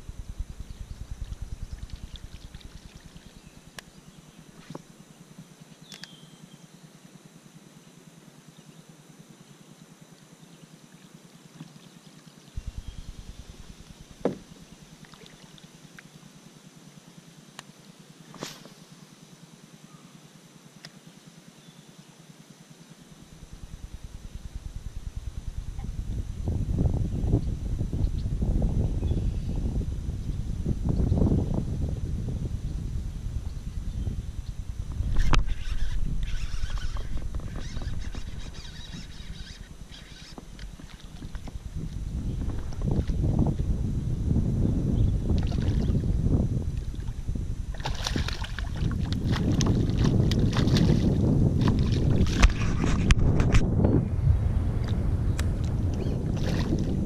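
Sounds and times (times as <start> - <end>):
kayak rumbling on water: 0.0 - 3.6, 12.6 - 15.5, 23.3 - 28.6, 33.1 - 57.0
knock against plastic hull: 14.2 - 14.5
faint ticks: 17.5 - 17.7
water splashing: 45.4 - 46.0, 46.8 - 52.8.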